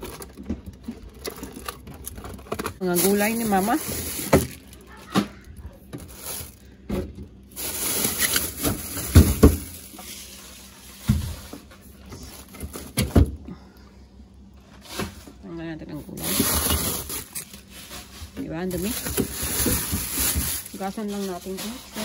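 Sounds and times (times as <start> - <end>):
plastic bags rustling: 0.0 - 13.3, 14.6 - 22.0.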